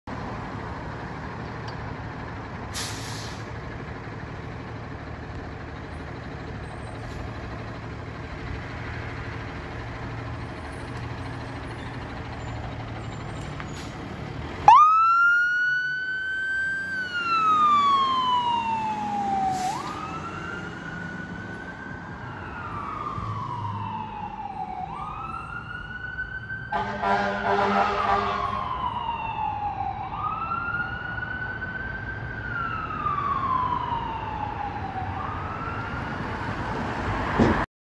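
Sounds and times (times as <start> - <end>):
fire engine rumbling: 0.1 - 37.7
siren wailing: 14.6 - 36.5
horn blasts: 26.7 - 28.6.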